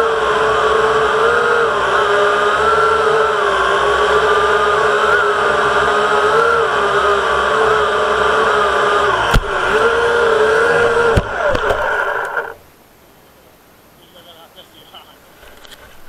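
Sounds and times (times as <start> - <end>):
drone motors whining: 0.0 - 12.6
drone knocking into grass: 9.3 - 9.6.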